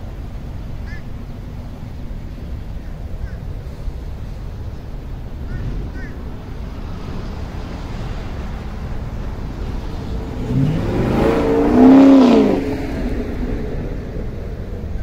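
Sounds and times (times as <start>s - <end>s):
car engine accelerating: 3.6s - 15.0s.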